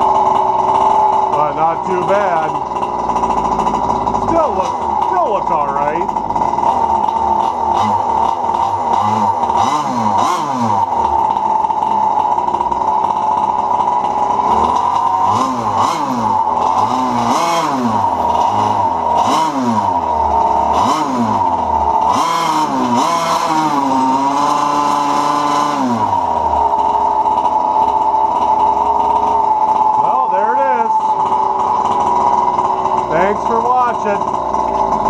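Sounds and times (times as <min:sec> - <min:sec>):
two-stroke engine revving: 0:00.0 - 0:35.0.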